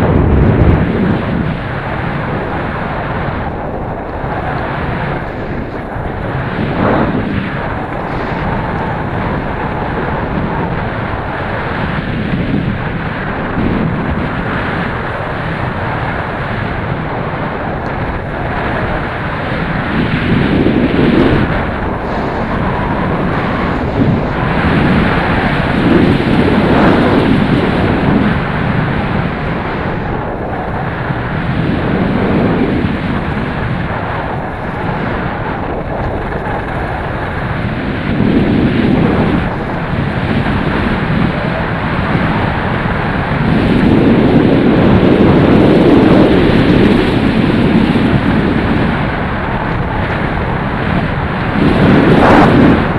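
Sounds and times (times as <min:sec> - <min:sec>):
wind buffeting microphone: 0:00.0 - 0:52.9
skis hissing over snow: 0:03.8 - 0:10.3.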